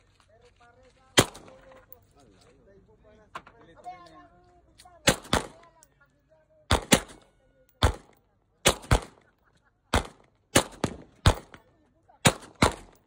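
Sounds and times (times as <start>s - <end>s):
pistol shots: 1.2s - 1.6s, 5.0s - 5.6s, 6.7s - 9.3s, 9.9s - 13.0s.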